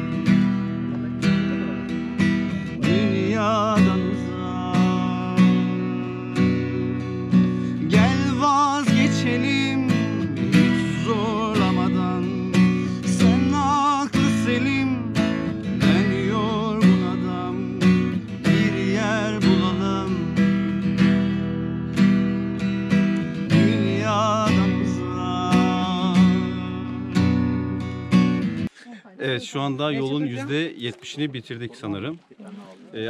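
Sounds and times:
acoustic guitar strumming: 0:00.0 - 0:33.0
man singing: 0:02.5 - 0:21.6, 0:23.2 - 0:27.6, 0:28.8 - 0:30.7.

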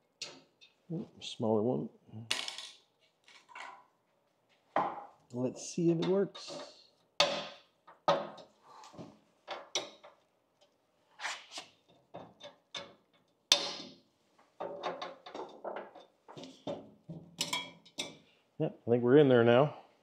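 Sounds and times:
hand tools knocking and clattering: 0:05.9 - 0:08.5, 0:12.1 - 0:18.2.

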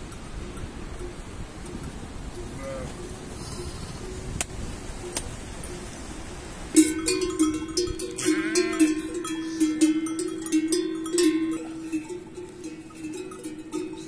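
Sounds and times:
short bleat: 0:02.6 - 0:04.0
neck bells clanking: 0:05.0 - 0:14.0.

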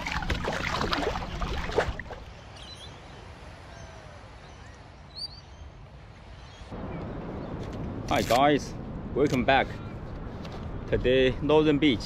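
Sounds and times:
sea noise: 0:00.0 - 0:07.5
rushing wind: 0:00.0 - 0:12.0.

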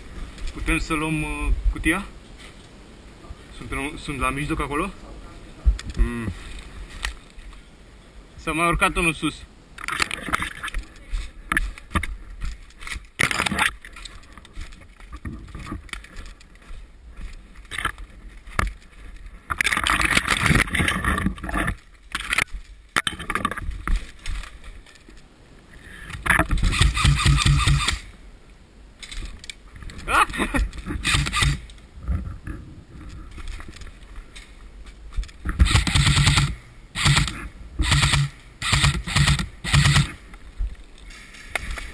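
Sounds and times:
clicks and rustles: 0:09.8 - 0:25.3, 0:29.0 - 0:36.5, 0:37.1 - 0:41.9
twigs scraping and snapping: 0:09.8 - 0:25.3, 0:29.0 - 0:32.4, 0:33.0 - 0:35.7.

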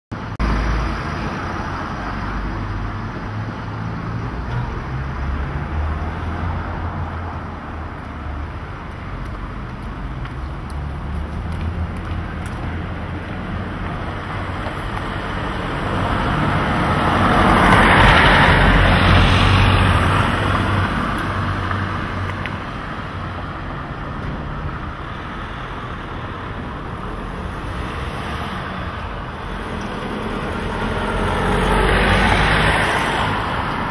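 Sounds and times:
road noise of passing cars: 0:00.1 - 0:33.9
vehicle passing close: 0:26.9 - 0:33.9.

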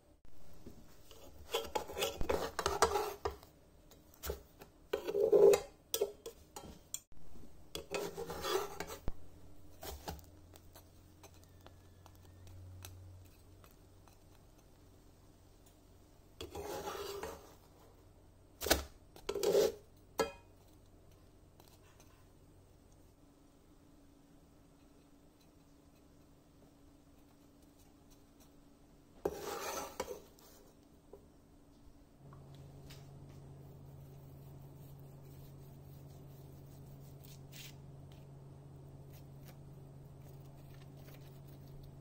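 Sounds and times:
spatula scraping frying pan: 0:01.0 - 0:03.4, 0:04.2 - 0:06.8, 0:07.7 - 0:09.1, 0:16.4 - 0:17.7, 0:19.2 - 0:20.4, 0:29.2 - 0:30.7.

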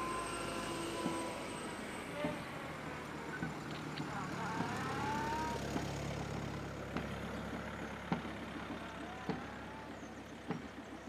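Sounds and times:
large vehicle engine rumbling: 0:00.0 - 0:11.0.

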